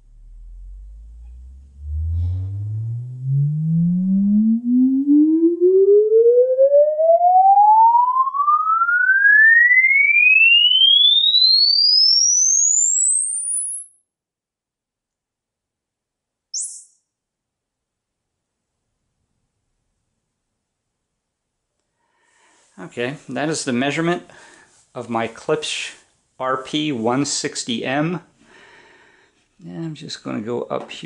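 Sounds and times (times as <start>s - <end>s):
rising sine sweep tone: 0.0s - 13.9s.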